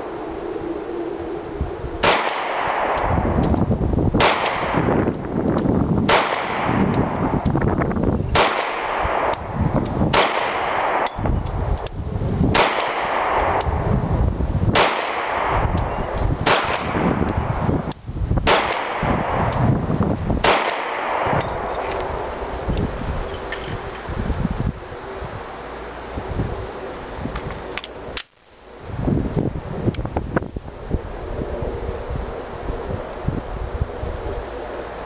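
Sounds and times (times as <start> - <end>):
pistol shots with echo: 2.0 - 3.3, 4.2 - 5.1, 6.1 - 7.2, 8.4 - 9.4, 10.1 - 11.2, 12.5 - 13.7, 14.8 - 17.1, 18.5 - 19.6, 20.4 - 21.8.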